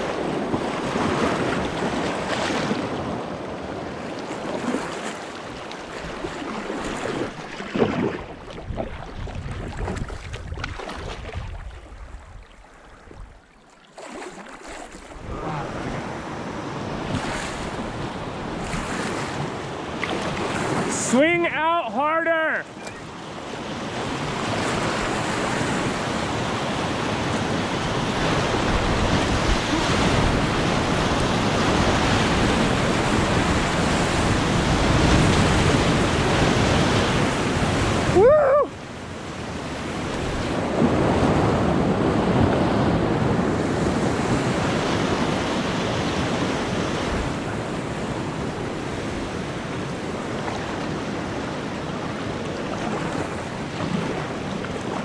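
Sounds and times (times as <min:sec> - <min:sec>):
wind on microphone: 0:05.9 - 0:13.4, 0:23.6 - 0:55.0
whitewater rushing: 0:14.0 - 0:23.1, 0:24.5 - 0:38.8.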